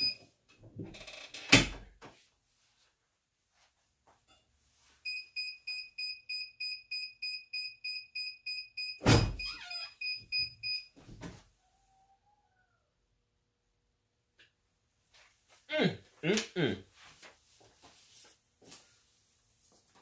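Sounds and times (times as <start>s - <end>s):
short squeak: 9.2s - 10.2s.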